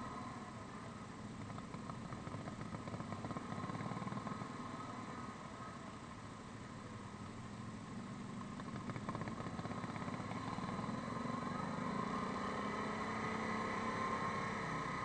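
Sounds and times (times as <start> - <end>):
atv engine running: 0.0 - 15.0.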